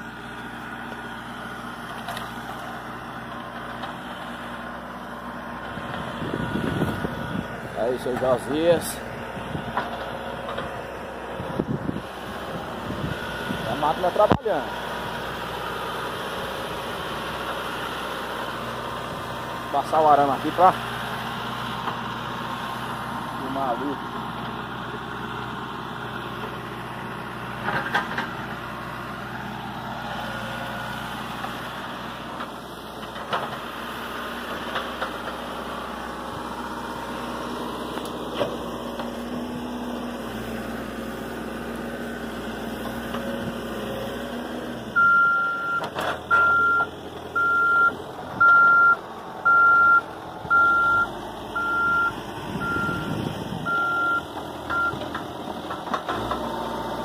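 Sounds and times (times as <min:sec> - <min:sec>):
diesel engine running: 0:00.0 - 0:57.0
reversing alarm beeping: 0:45.0 - 0:55.0.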